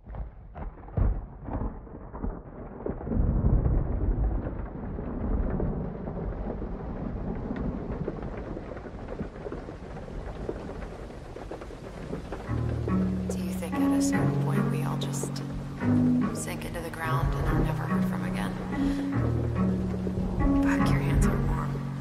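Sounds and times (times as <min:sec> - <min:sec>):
sharp thunder cracks: 0:00.0 - 0:14.5, 0:15.2 - 0:22.0
low rumble of thunder: 0:00.0 - 0:22.0
steady rain: 0:00.1 - 0:22.0.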